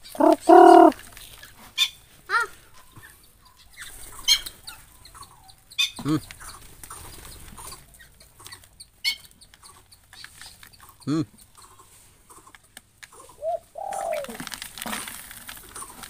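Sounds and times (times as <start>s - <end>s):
lower rising and falling bird call: 0.0s - 1.0s, 13.4s - 14.4s.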